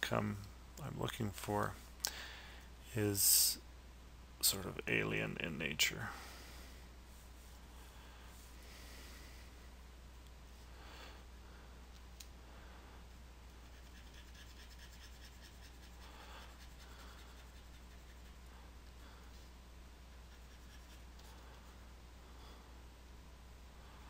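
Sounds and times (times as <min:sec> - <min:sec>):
low electrical hum: 0:00.0 - 0:24.0
faint scratchy rustles: 0:07.0 - 0:08.7.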